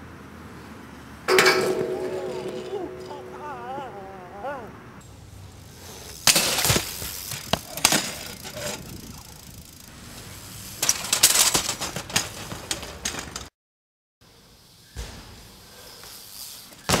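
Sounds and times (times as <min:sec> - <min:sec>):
bike crashing onto pavement: 0:01.3 - 0:04.0, 0:06.0 - 0:13.5
bike pegs clacking on ledge: 0:01.3 - 0:04.9, 0:06.2 - 0:09.9.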